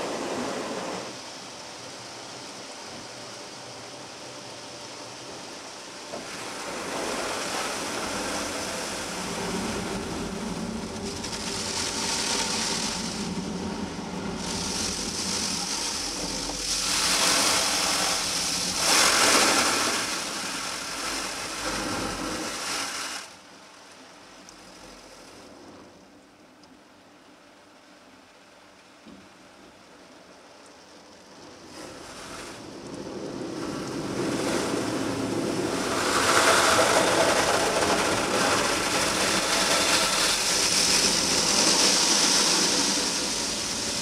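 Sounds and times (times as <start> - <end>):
spraying water: 5.4 - 23.4, 31.6 - 44.0
car wash brushes scrubbing: 6.6 - 23.3, 34.4 - 44.0.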